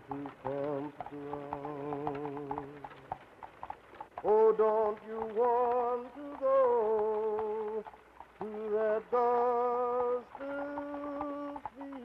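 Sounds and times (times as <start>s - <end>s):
person singing slow melody: 0.0s - 3.1s, 4.2s - 12.0s.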